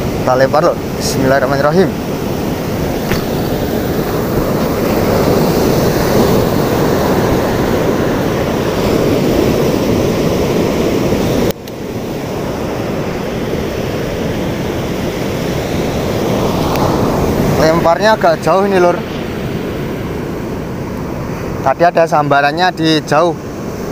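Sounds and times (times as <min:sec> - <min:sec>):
wind on microphone: 0:00.0 - 0:21.6
surf breaking on beach: 0:00.0 - 0:23.9.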